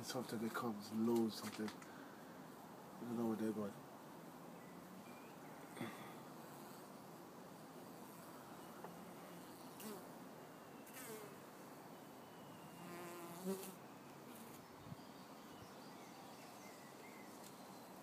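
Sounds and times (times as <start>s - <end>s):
bee buzzing close by: 9.5s - 10.0s, 10.8s - 11.4s, 12.8s - 14.6s.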